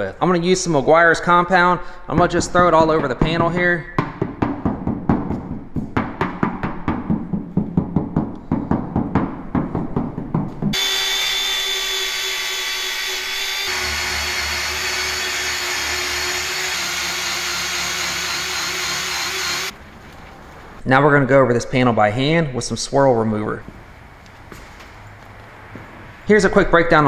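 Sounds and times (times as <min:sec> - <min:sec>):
cordless buffer whining: 0:10.8 - 0:19.7.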